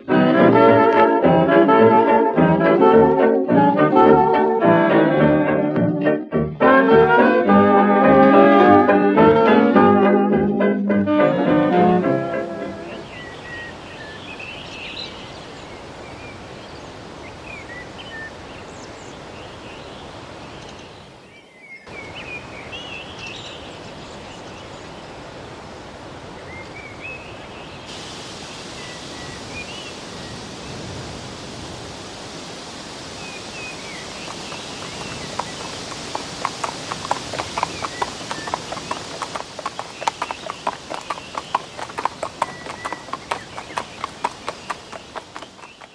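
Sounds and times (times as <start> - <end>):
steady hiss: 12.0 - 45.9
pony hooves clip-clopping: 33.5 - 45.9.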